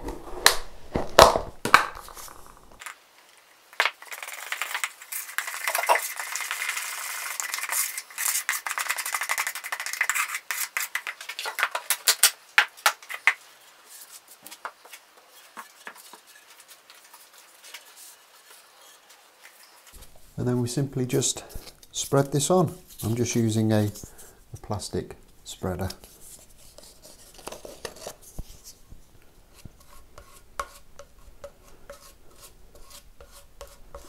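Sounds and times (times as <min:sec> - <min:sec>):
knife stirring thick paste: 0:29.5 - 0:34.0.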